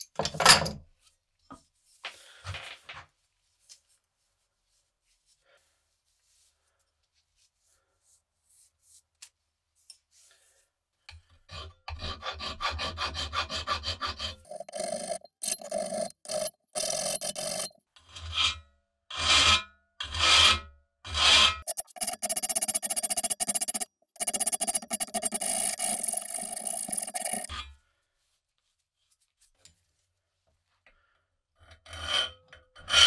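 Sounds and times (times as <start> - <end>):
hand file rasping on steel: 11.4 - 16.5.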